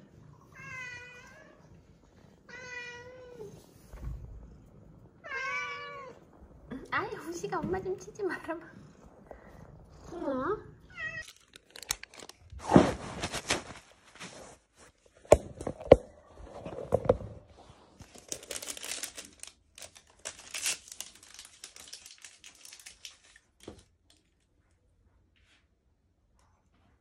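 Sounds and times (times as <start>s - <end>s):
crinkling and rustling: 11.0s - 24.8s.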